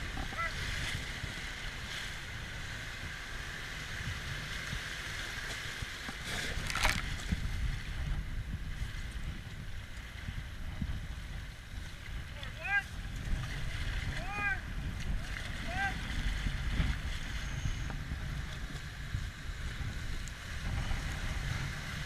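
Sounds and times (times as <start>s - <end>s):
river water running: 0.0s - 8.0s
wind rumbling on microphone: 0.0s - 22.0s.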